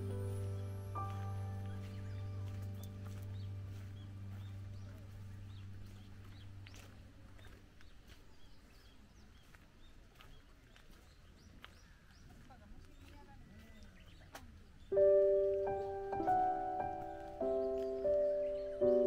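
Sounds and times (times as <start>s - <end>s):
background music: 0.0s - 7.4s, 14.9s - 19.0s
bird chirping: 0.0s - 19.0s.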